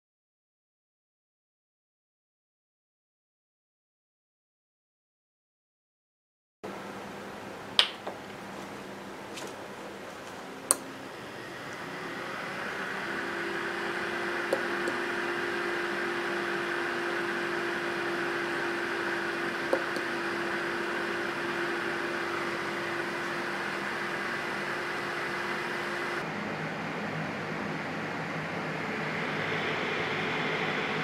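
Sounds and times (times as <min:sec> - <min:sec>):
cooling fan humming: 0:06.6 - 0:31.0.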